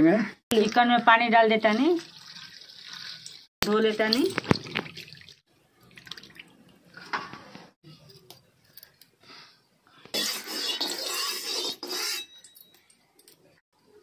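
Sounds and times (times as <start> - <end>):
faint water splashing in bowl: 1.6 - 6.9
spatula scraping metal pan: 10.2 - 12.4.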